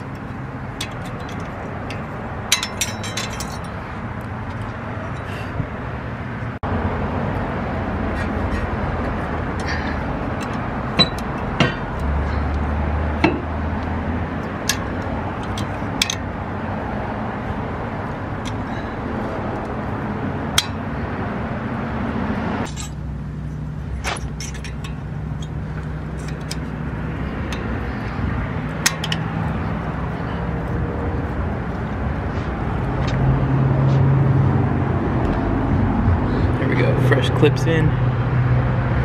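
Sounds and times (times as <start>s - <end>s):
metallic clicks and clinks: 0.8s - 3.8s.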